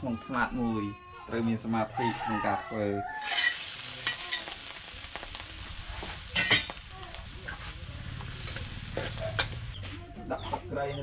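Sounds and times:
food sizzling in a pan: 3.0s - 9.8s.

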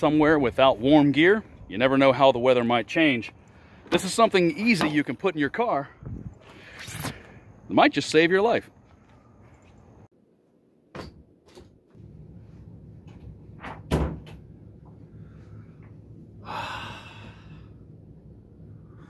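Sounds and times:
steady low hum: 11.9s - 19.0s.

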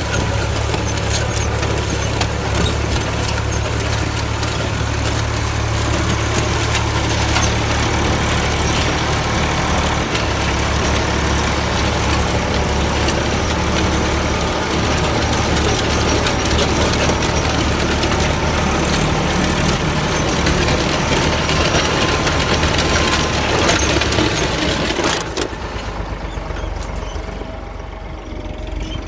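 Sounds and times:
plough discs scraping soil: 0.0s - 27.6s
tractor engine hum: 0.0s - 29.0s.

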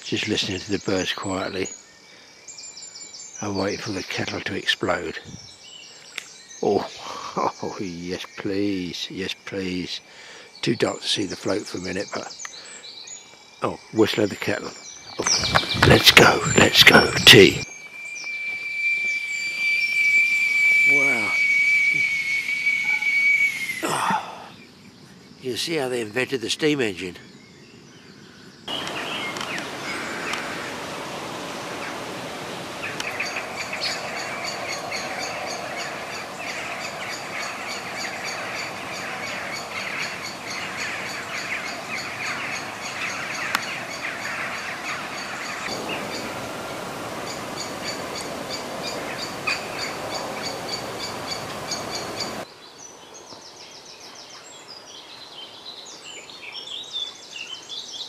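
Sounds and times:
birdsong chirps: 0.0s - 58.0s
steady hiss: 28.2s - 53.6s.

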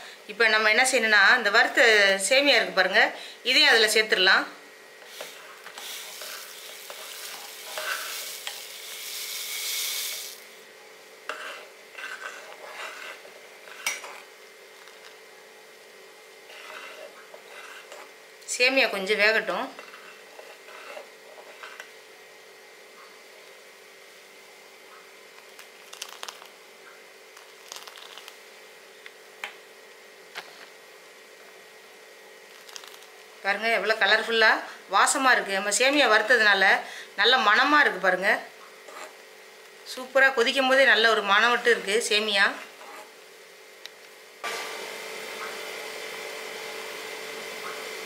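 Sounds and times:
metal ladle scraping a metal pot: 6.0s - 8.6s, 11.3s - 14.2s, 16.5s - 18.1s.

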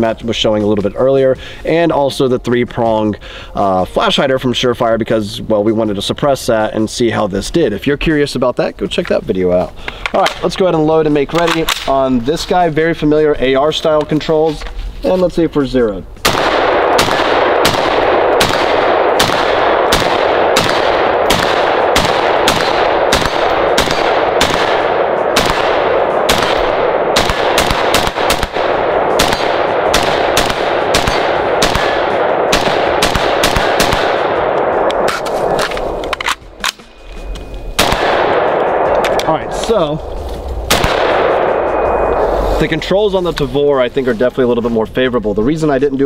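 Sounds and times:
rifle shots with echo: 16.2s - 36.9s, 37.7s - 42.6s.

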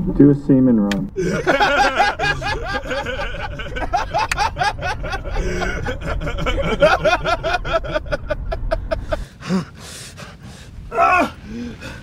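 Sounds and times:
low rumble: 1.1s - 12.0s
men laughing: 1.2s - 9.7s.

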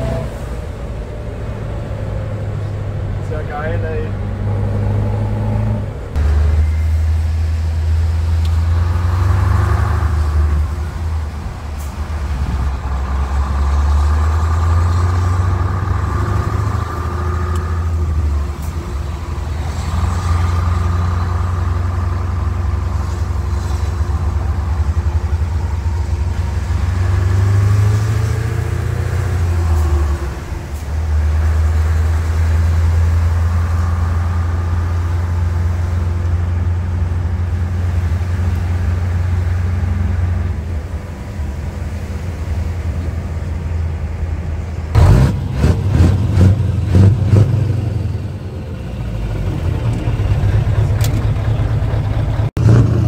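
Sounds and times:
diesel truck engine under load: 0.0s - 53.0s.

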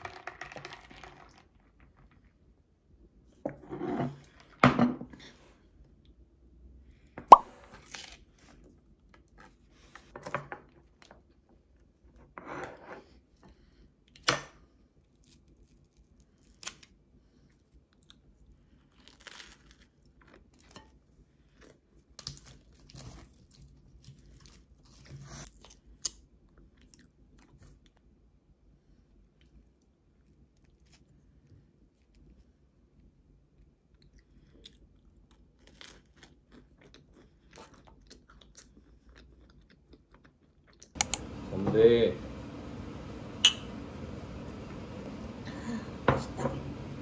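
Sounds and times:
toast crunching: 18.9s - 21.0s
sharp click: 41.0s - 41.3s.

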